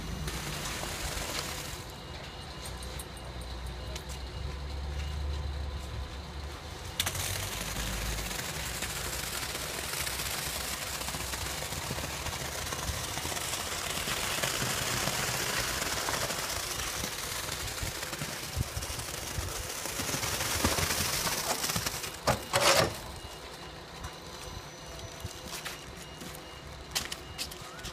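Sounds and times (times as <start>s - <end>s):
wet concrete pouring: 0.0s - 1.9s, 7.0s - 23.0s.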